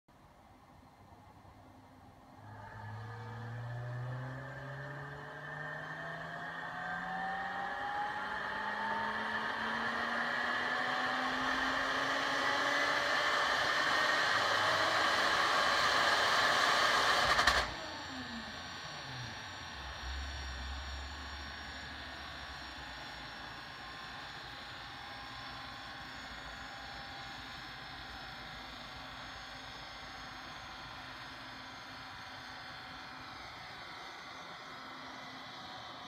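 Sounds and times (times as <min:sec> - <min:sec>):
engine revving at full throttle: 0:02.4 - 0:22.6.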